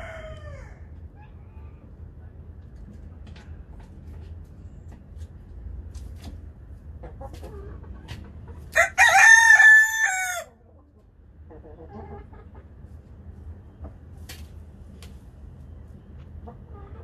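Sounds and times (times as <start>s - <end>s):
rooster crowing: 0.0s - 0.9s, 8.8s - 10.5s
hens clucking: 6.7s - 14.1s, 16.2s - 17.0s.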